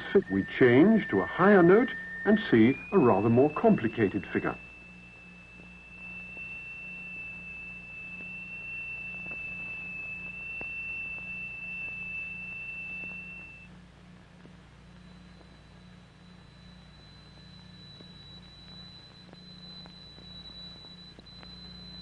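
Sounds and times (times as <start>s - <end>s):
high-pitched vibrating plate tone: 0.0s - 13.7s.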